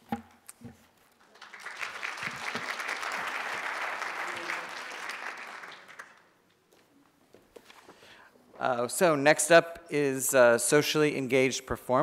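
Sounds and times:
audience applauding: 1.2s - 6.4s.

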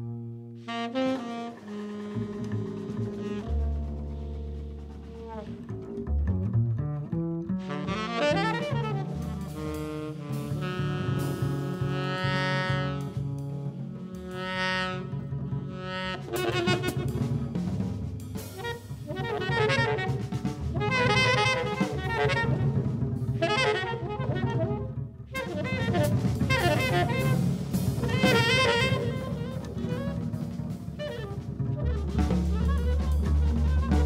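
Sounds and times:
bass: 0.0s - 34.0s
drum kit: 0.0s - 34.0s
tenor saxophone phrases: 28.0s - 34.0s.

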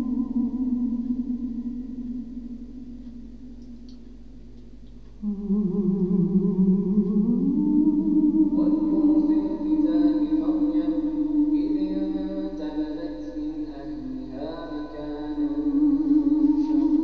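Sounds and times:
call to prayer chanted: 5.2s - 17.0s.

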